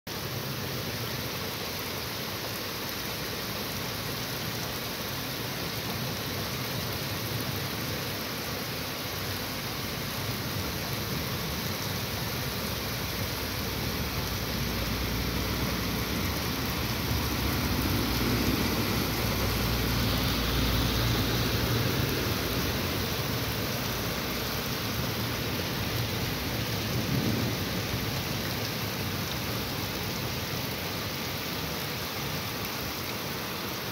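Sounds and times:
heavy rain falling: 0.1s - 33.9s
thunder rumbling: 13.1s - 29.7s.

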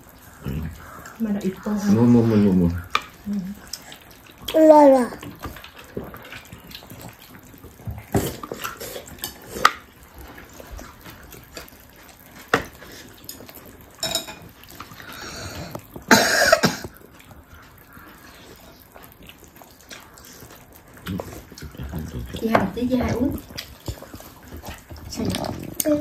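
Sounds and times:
dishes and utensils clinking: 14.0s - 14.6s.

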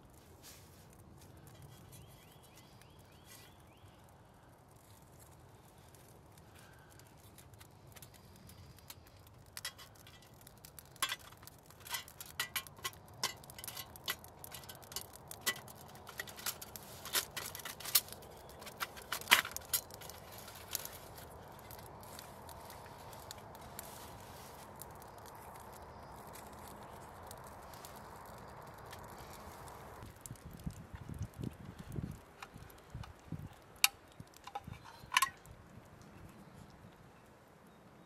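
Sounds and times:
metallic clicks of camp stove: 6.9s - 20.9s, 30.2s - 35.6s.

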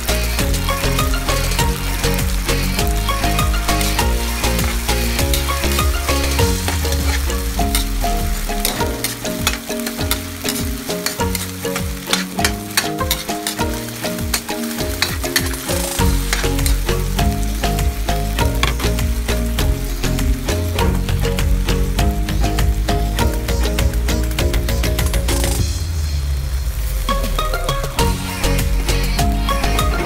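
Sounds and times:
background music: 0.0s - 30.0s
food sizzling in a wok: 0.0s - 30.0s
metal ladle scraping a wok: 3.8s - 16.8s
ladle clicking on wok: 8.6s - 16.9s, 18.4s - 19.0s.

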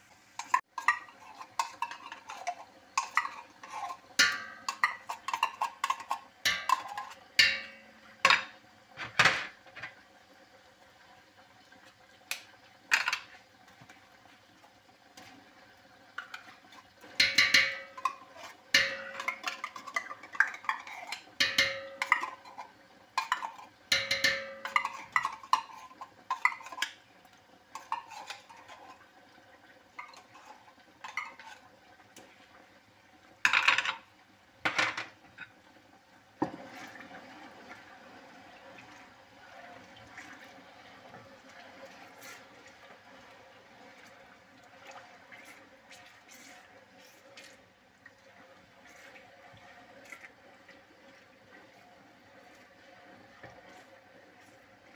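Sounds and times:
metal pots and utensils clanking: 0.4s - 10.0s, 12.9s - 14.0s, 16.2s - 27.0s, 27.7s - 29.0s, 30.0s - 31.7s, 33.4s - 34.1s, 34.7s - 35.5s.

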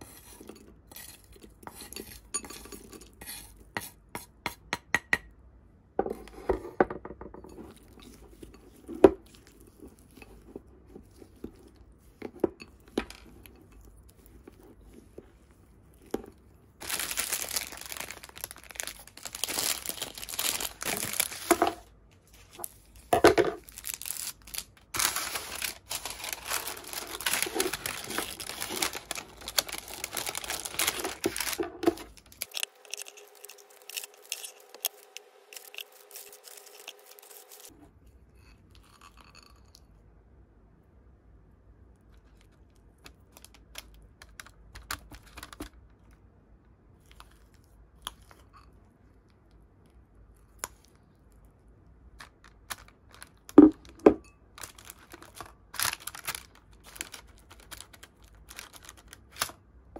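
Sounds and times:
metal spoon scraping glass bowl: 0.0s - 3.6s
parchment paper crinkling: 16.8s - 37.7s, 52.2s - 59.6s.

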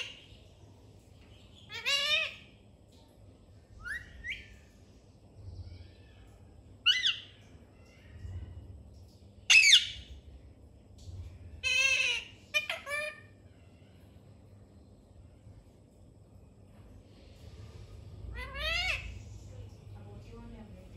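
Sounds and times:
parakeet calls: 0.0s - 0.5s, 1.3s - 2.6s, 5.6s - 8.2s, 9.5s - 10.1s, 11.6s - 14.0s, 18.3s - 19.6s.

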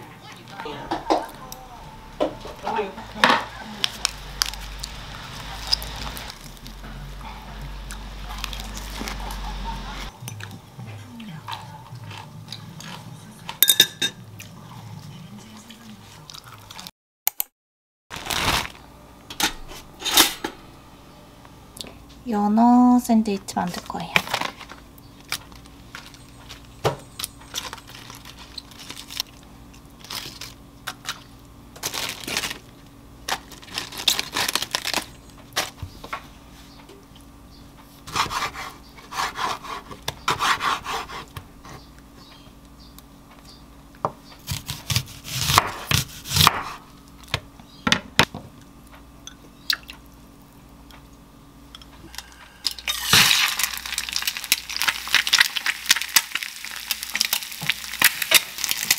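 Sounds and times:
knife slicing on cutting board: 38.1s - 41.3s
fat sizzling in frying pan: 52.9s - 58.9s.

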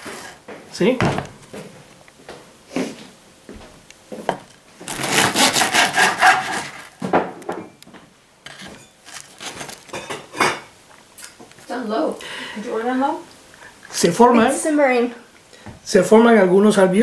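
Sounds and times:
knife sawing through bread crust: 4.9s - 6.9s.

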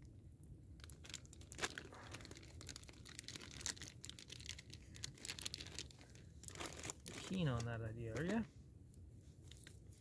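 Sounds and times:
plastic wrapper crinkling and tearing: 0.8s - 8.5s.

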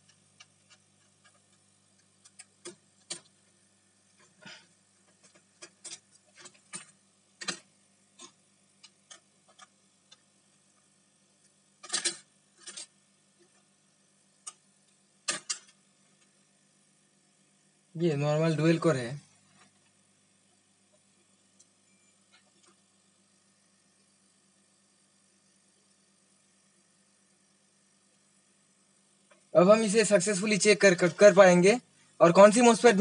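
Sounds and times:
metal parts clicking and tapping: 5.0s - 10.2s, 11.8s - 12.9s, 15.2s - 16.3s.

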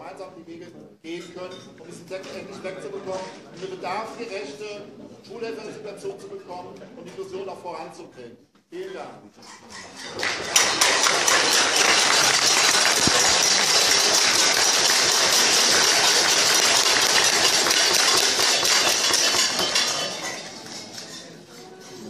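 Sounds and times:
audience applauding: 10.2s - 20.2s.

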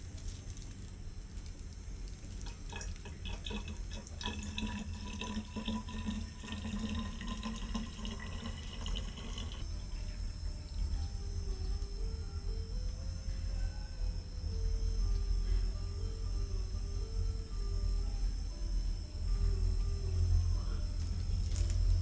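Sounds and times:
liquid pouring and gurgling: 2.4s - 9.7s
steady low rumble: 9.6s - 22.0s.

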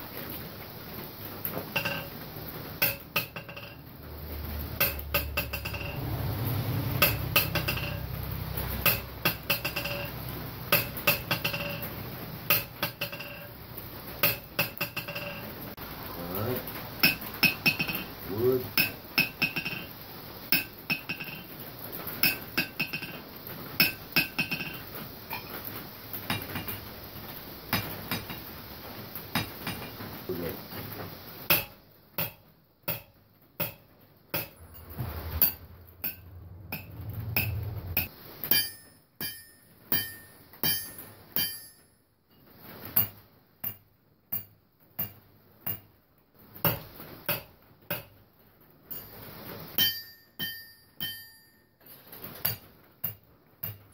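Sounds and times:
hammer striking anvil: 1.8s - 2.1s, 2.8s - 3.8s, 4.8s - 6.2s, 6.9s - 11.9s, 12.5s - 13.5s, 14.2s - 15.5s, 17.0s - 18.1s, 18.7s - 19.9s, 31.5s - 41.9s, 46.7s - 48.2s, 49.8s - 51.6s.

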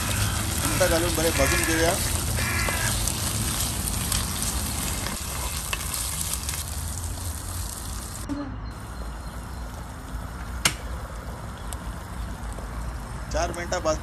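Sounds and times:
wooden spatula stirring: 0.0s - 6.7s
prawns sizzling in oil: 0.0s - 13.3s.

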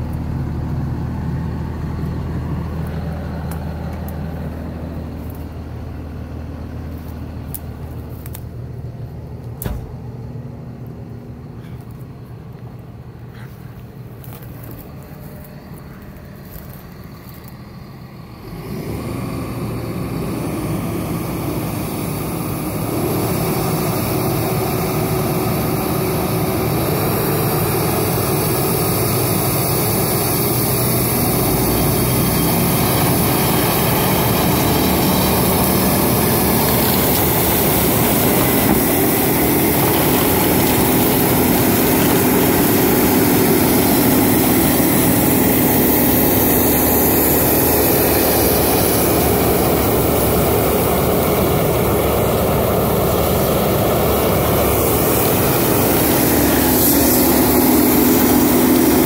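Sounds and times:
forestry mulcher shredding: 0.0s - 59.0s.

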